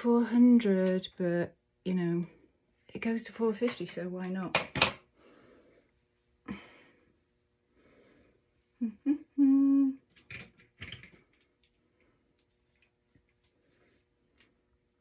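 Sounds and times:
woman humming: 8.8 - 10.1.

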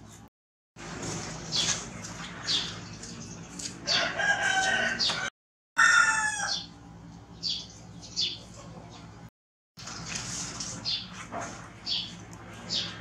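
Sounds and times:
rooster crowing: 3.9 - 6.8.

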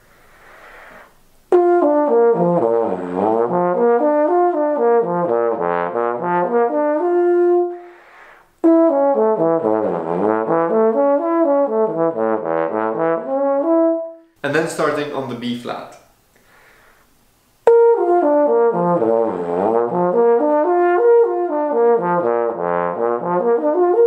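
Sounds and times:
bass trombone playing runs: 1.5 - 8.0, 8.6 - 16.0, 17.7 - 24.0
breath taken: 7.8 - 8.5, 16.3 - 17.1.

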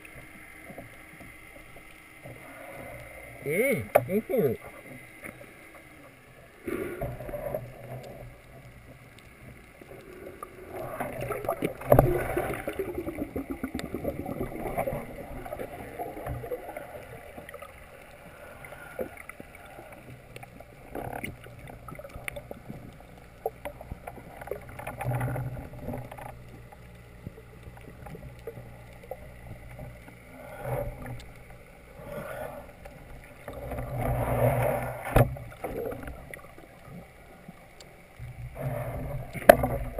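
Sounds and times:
muffled underwater water murmur: 0.0 - 39.9
underwater clicks and knocks: 3.8 - 4.2, 11.0 - 17.6, 19.0 - 31.4, 33.4 - 37.0, 39.1 - 39.9.

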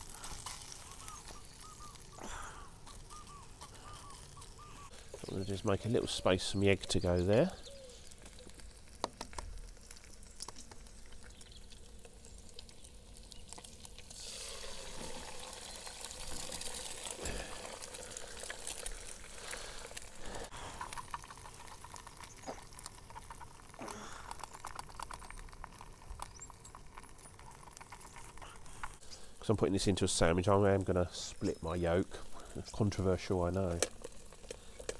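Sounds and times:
egg hissing in hot fat: 0.0 - 5.3, 7.7 - 29.4
bacon sizzling in frying pan: 0.0 - 5.7, 7.2 - 29.1, 32.9 - 34.9.

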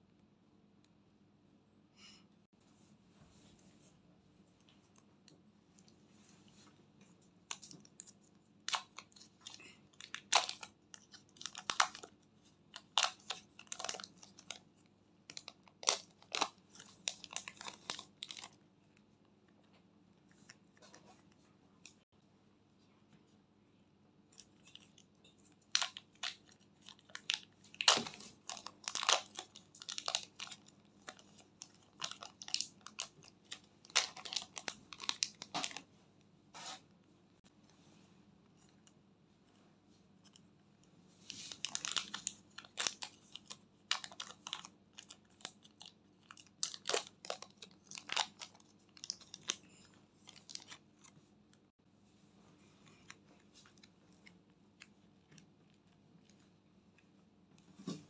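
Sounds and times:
plastic bags crinkling: 8.7 - 12.1, 12.7 - 14.6, 15.3 - 18.6, 24.4 - 35.8, 41.3 - 50.8.

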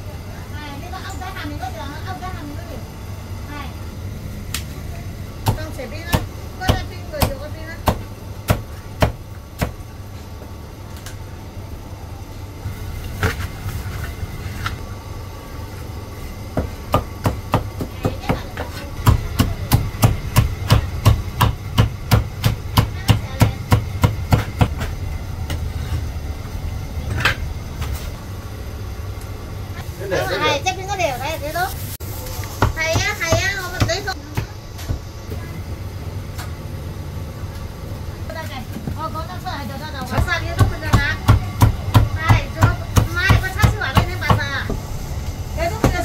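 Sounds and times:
low hum: 34.1 - 46.0.

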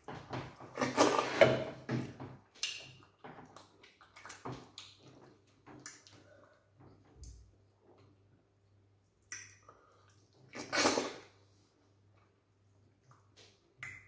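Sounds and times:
chewing and mouth clicks: 2.6 - 6.6.

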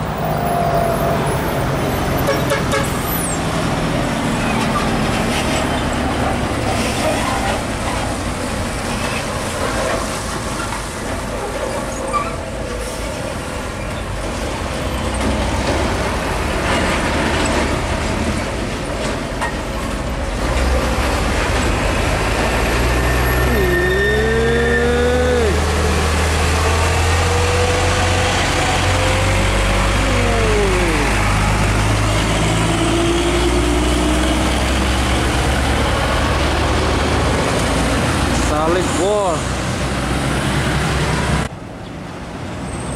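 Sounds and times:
diesel trucks passing: 0.0 - 42.9
pitched squeal: 22.3 - 33.1.

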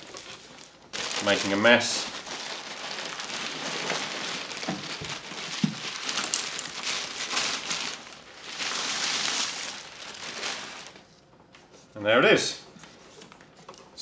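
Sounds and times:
plastic bag crinkling: 0.0 - 11.1.

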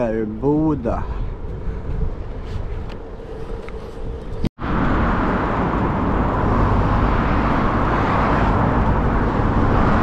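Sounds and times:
wind noise on microphone: 0.0 - 10.0.

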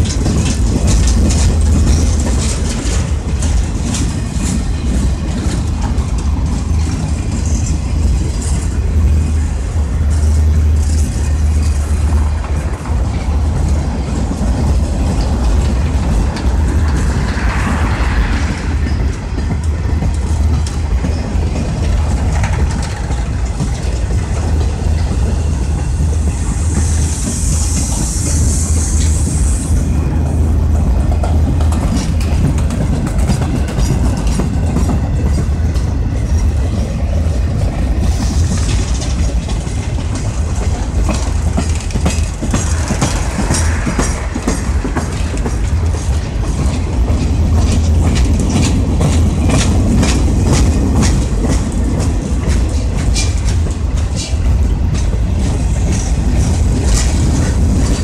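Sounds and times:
train wheels rumbling on rail: 0.0 - 58.0
wheels clicking over rail joints: 0.0 - 58.0
high hiss: 26.3 - 29.9.

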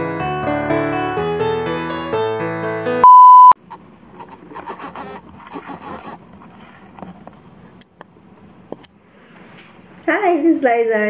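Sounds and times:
test tone beep: 3.0 - 3.6
faint scraping and rustling: 4.2 - 7.4.

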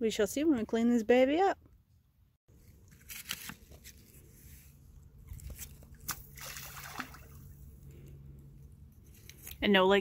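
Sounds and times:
stone splashing into water: 6.0 - 7.4.

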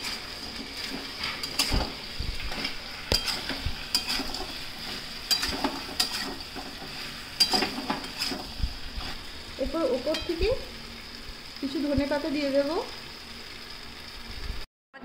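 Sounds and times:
metal spatula scraping a pan: 0.0 - 9.3
chicken sizzling in a wok: 0.0 - 15.0.

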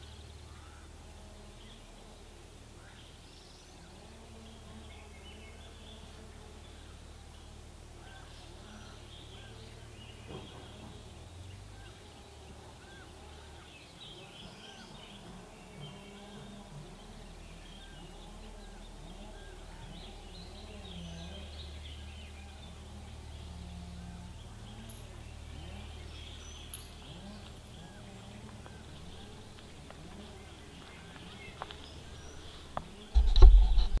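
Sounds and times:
bird chirps: 0.0 - 33.9
low steady rumble: 0.0 - 34.0
knocking and rustling on microphone: 32.7 - 34.0.

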